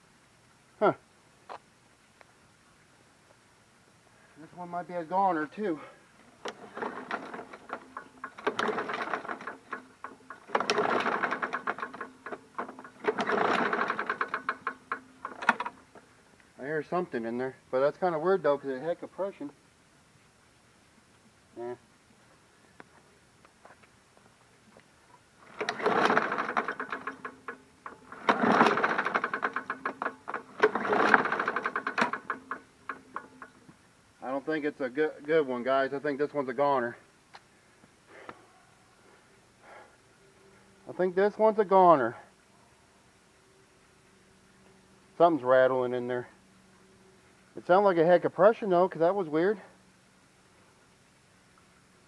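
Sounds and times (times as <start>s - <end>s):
mower engine cranking and rattling: 4.4s - 19.5s, 25.4s - 37.0s.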